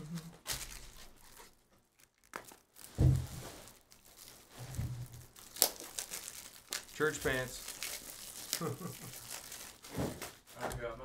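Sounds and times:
foil wrapper crinkling: 0.0 - 10.5
dull thump: 3.0 - 3.6.

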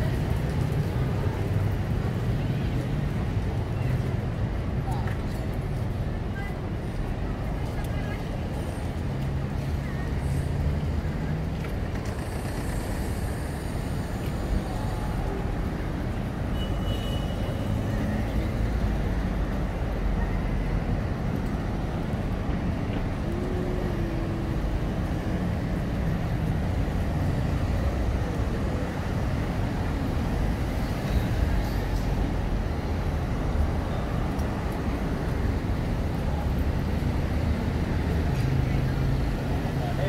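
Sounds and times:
city traffic rumble: 0.0 - 40.0.

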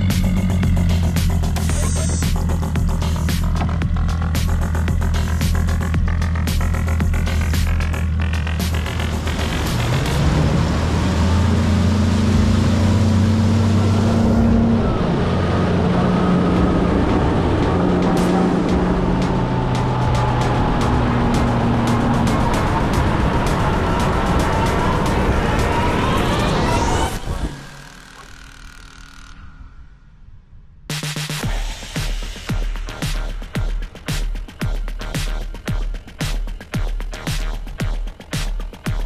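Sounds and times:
outboard motor at speed: 0.0 - 29.6.

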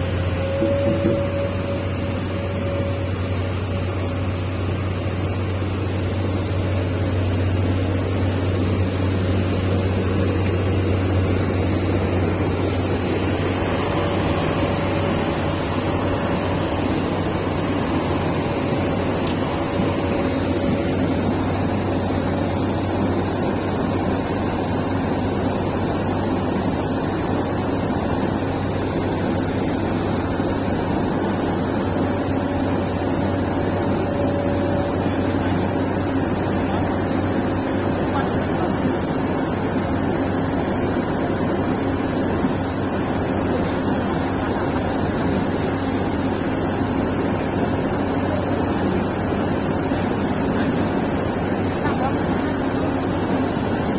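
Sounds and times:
heavy machine engine running: 0.0 - 53.9.

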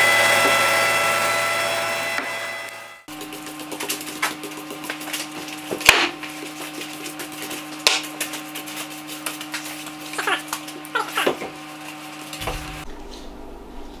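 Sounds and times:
steady low hum: 3.0 - 14.0.

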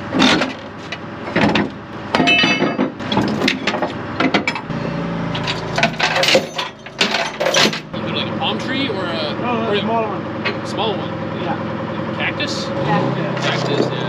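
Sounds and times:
metal chain clanking: 1.3 - 4.7, 5.3 - 8.0.

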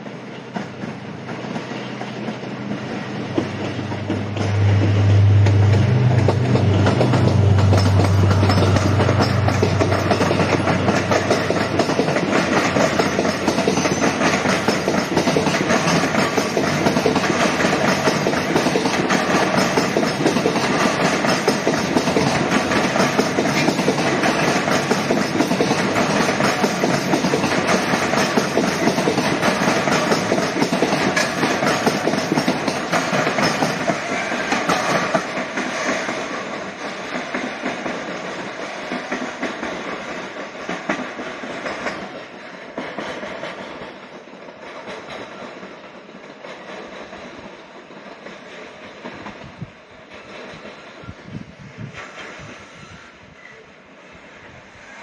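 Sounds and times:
diesel locomotive engine drone: 0.0 - 42.8
train wheels clattering: 0.0 - 51.2.

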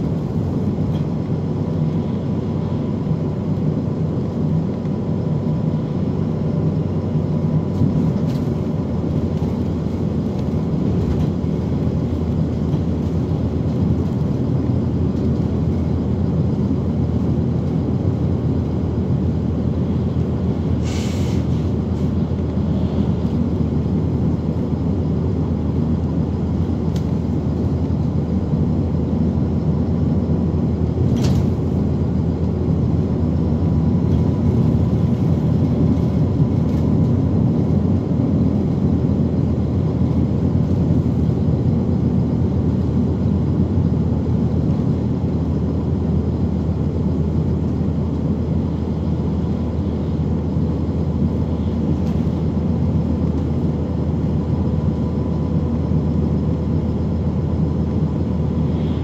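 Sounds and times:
bus engine and road rumble: 0.0 - 59.0
short air hisses: 20.8 - 21.7.

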